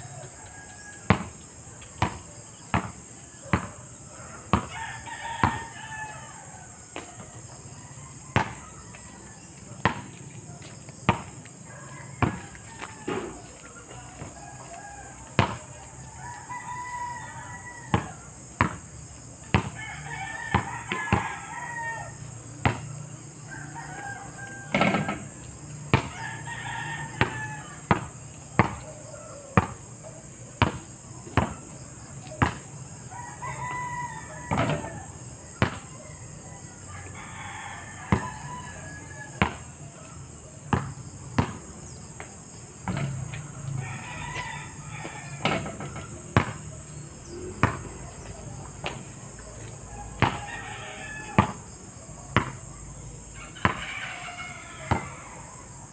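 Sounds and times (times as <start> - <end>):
roosters crowing: 0.0 - 55.9
basketball bouncing on asphalt: 0.5 - 6.1, 8.3 - 15.8, 17.8 - 21.5, 22.6 - 23.0, 23.8 - 29.9, 30.6 - 32.9, 34.5 - 35.9, 38.0 - 38.5, 39.3 - 39.8, 40.6 - 52.7, 53.6 - 54.1, 54.8 - 55.2.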